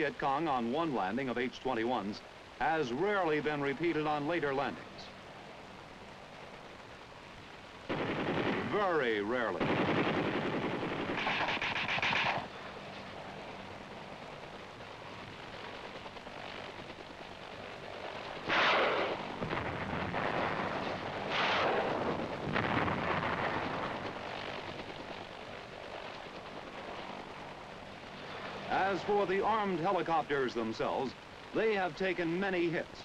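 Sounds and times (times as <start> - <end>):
low steady background: 0.0 - 33.0
machine-gun fire: 7.9 - 12.5, 18.4 - 24.9
loud blasts: 7.9 - 12.6, 18.4 - 24.2.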